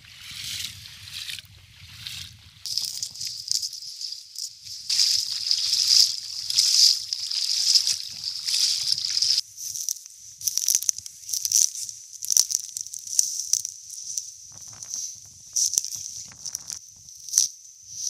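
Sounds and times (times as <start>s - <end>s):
dog moving through dry grass: 2.7s - 9.4s.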